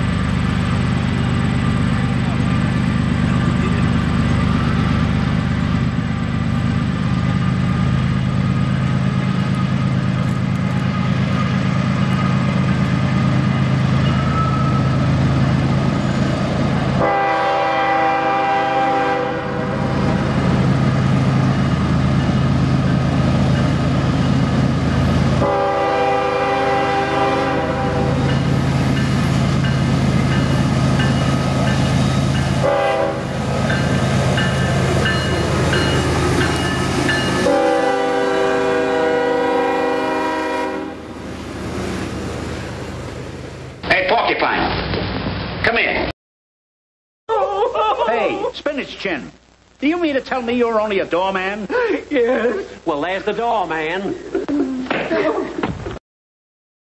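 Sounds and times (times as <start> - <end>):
freight cars rolling: 0.0 - 17.0
diesel locomotive engine droning: 0.0 - 44.1
train air horn: 17.0 - 20.2, 25.4 - 28.3, 32.6 - 33.5, 37.4 - 41.1.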